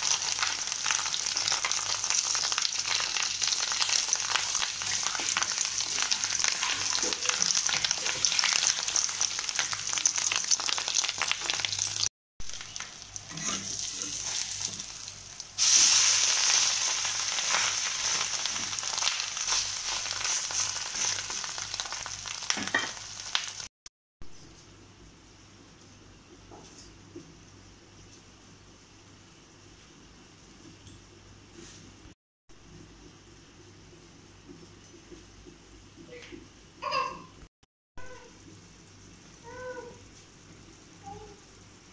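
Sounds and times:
fish cakes sizzling in hot oil: 0.0 - 23.7
oil crackles: 0.0 - 23.7
spatula turning food: 3.4 - 9.6, 12.7 - 14.9.

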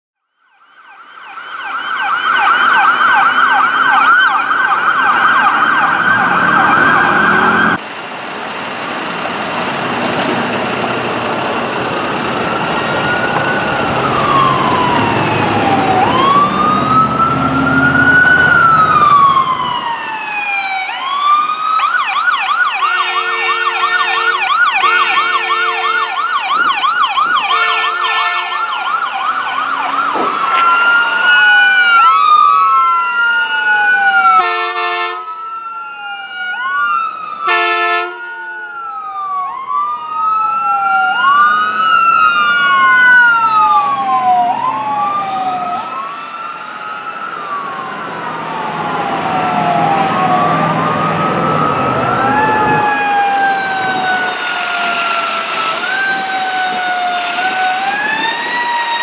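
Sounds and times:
siren wailing: 0.4 - 7.8, 11.5 - 59.0
siren yelping: 0.5 - 7.8, 11.9 - 59.0
horn blasts: 22.8 - 26.2, 27.5 - 28.6, 34.4 - 35.3, 37.4 - 38.3.

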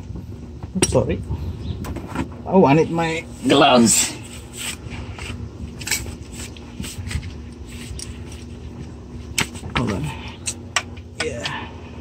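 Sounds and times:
steady low hum: 0.0 - 12.0
shuffling and handling noises: 3.2 - 10.4.

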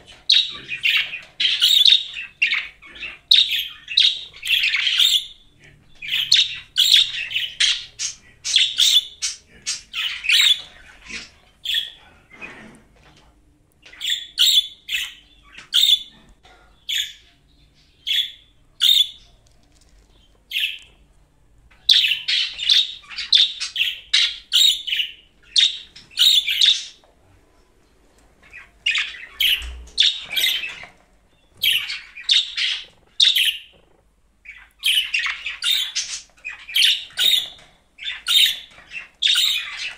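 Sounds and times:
budgerigars chirping: 0.0 - 12.7, 13.9 - 19.4, 20.5 - 21.0, 21.7 - 27.0, 28.4 - 33.8, 34.4 - 39.9.

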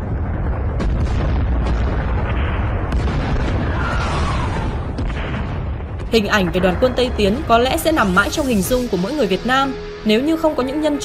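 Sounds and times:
explosion blasts: 0.0 - 11.0
falling whistle: 3.7 - 4.8.

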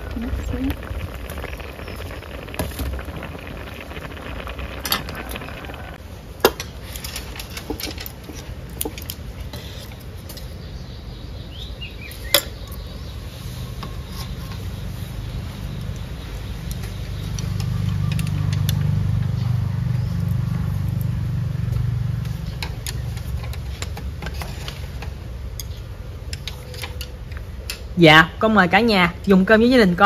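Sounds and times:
low background rumble: 0.0 - 6.4.

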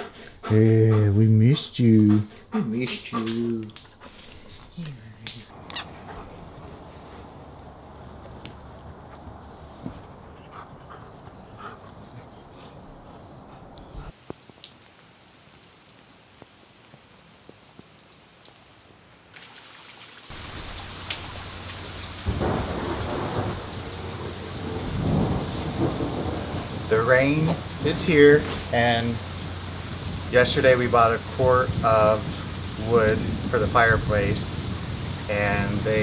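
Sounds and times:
steady rain: 14.1 - 36.0
water dripping off roof: 14.1 - 36.0.

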